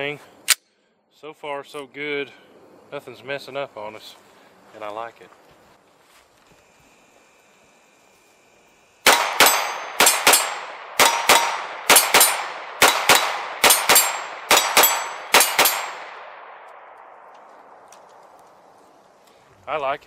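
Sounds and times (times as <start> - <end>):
pistol shots: 9.0 - 17.3
steel targets ringing: 9.1 - 12.4, 13.1 - 16.0.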